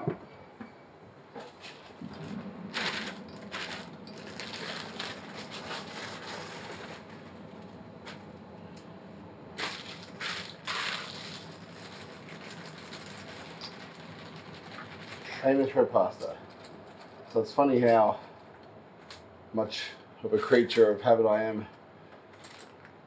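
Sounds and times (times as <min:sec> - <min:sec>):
steady low hum: 0:00.0 - 0:23.0
plastic packaging crinkling: 0:01.4 - 0:08.3, 0:09.6 - 0:17.3, 0:22.3 - 0:23.0.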